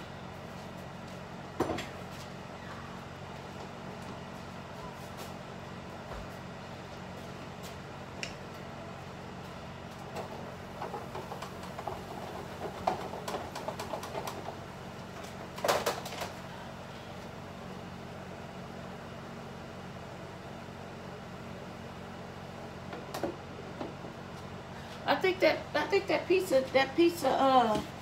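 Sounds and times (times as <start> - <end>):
appliance hum: 0.0 - 28.0
crackles and knocks at stove: 10.0 - 16.4.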